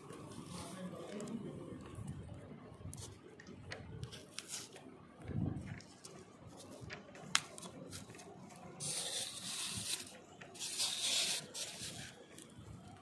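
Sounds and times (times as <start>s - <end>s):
rustling scrapes on foam board: 8.8s - 12.4s.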